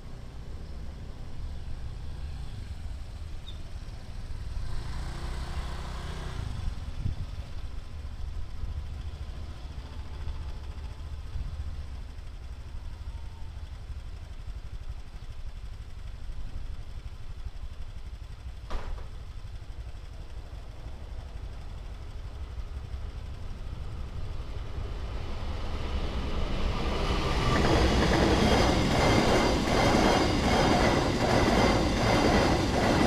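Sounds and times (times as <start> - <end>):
motorcycle engine idling: 10.5 - 24.8.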